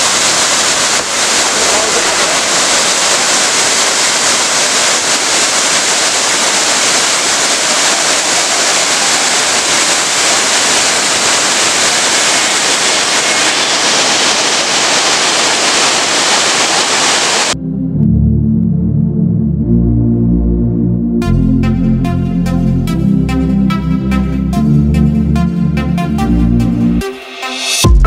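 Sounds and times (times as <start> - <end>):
waterfall rushing over rock: 0.0 - 17.6.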